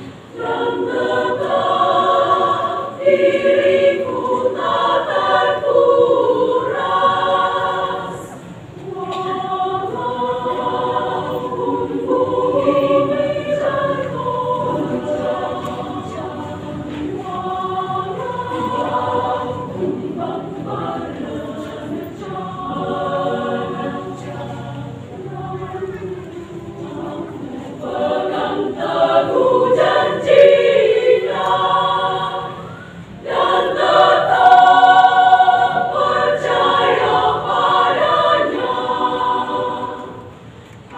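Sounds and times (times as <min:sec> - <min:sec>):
women's choir singing: 0:00.0 - 0:40.9.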